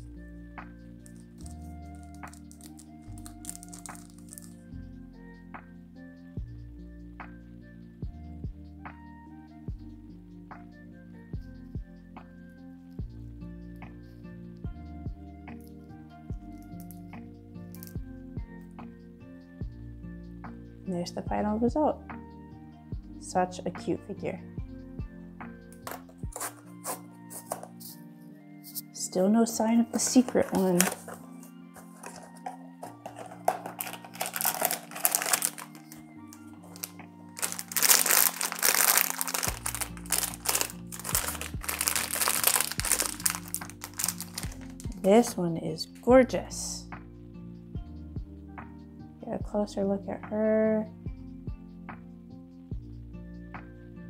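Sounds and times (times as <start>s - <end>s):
soft background music: 0.0s - 54.0s
foil bag crinkling: 1.4s - 4.6s, 30.0s - 45.0s.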